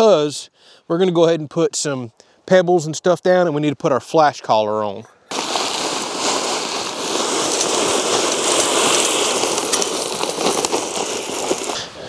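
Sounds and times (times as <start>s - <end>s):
pebbles clicking: 5.3s - 11.8s
pebbles pouring onto ground: 5.3s - 11.9s.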